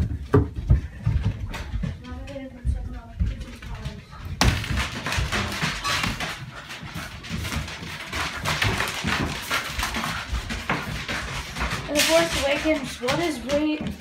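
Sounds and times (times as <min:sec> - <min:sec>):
footsteps on hard floor: 0:00.0 - 0:14.0
dog noises: 0:05.2 - 0:14.0.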